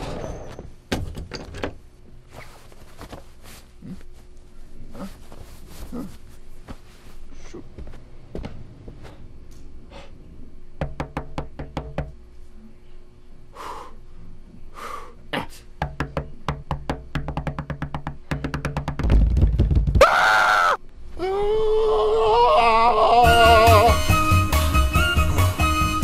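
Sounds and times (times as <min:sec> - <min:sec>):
breathy vocal sounds: 0:03.8 - 0:04.1, 0:04.8 - 0:05.2, 0:05.8 - 0:06.2
fist knocking on wooden door: 0:10.8 - 0:12.2, 0:15.8 - 0:20.0
loud drawn-out yell: 0:20.0 - 0:24.0.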